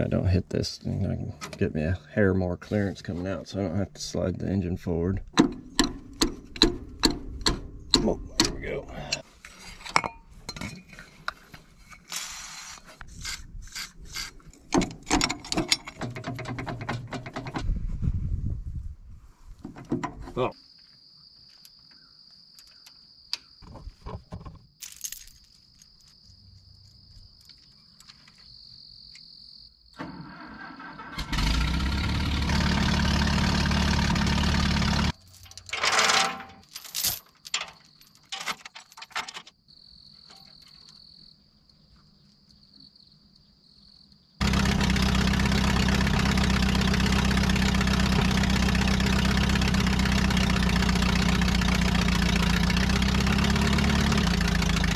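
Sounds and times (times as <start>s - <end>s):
tractor engine running: 4.8s - 9.2s, 14.4s - 17.7s, 30.0s - 36.2s, 44.4s - 54.9s
clicks and knocks: 5.3s - 8.6s, 14.7s - 17.7s
insects trilling: 20.4s - 24.8s, 25.4s - 31.0s, 39.5s - 44.4s.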